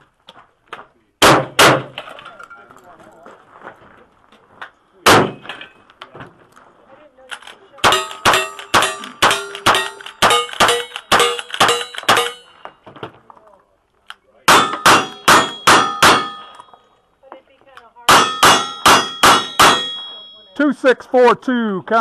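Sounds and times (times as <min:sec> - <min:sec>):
rifle shots: 0:01.2 - 0:02.0, 0:05.0 - 0:05.5, 0:07.8 - 0:12.5, 0:14.5 - 0:16.5, 0:18.1 - 0:20.0
steel target ringing: 0:07.8 - 0:12.6, 0:14.5 - 0:16.9, 0:18.1 - 0:20.6.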